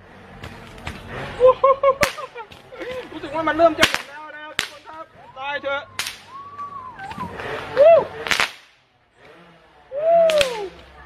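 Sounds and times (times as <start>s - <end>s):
firework bangs: 2.0s - 2.6s, 3.7s - 5.1s, 5.9s - 8.8s.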